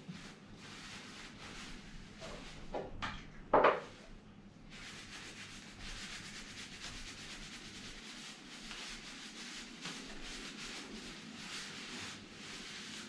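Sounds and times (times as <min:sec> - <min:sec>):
cloth scrubbing wood: 0:04.7 - 0:13.0.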